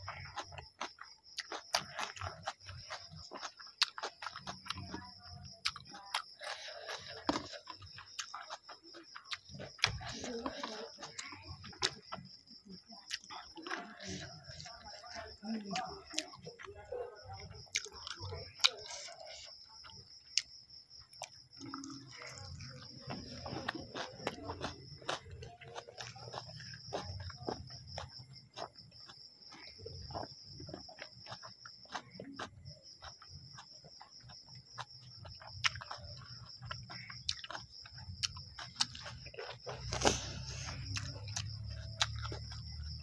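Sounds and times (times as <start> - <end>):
wet eating mouth sounds: 0.0 - 16.7, 17.4 - 43.0
person chewing food: 0.0 - 43.0.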